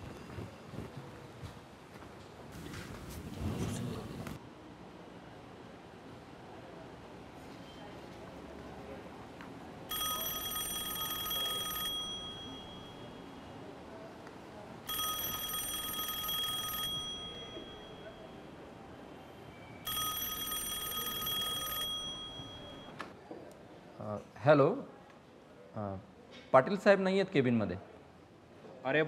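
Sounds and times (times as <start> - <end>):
telephone ringing trill: 9.9 - 13.4, 14.9 - 18.4, 19.8 - 23.0.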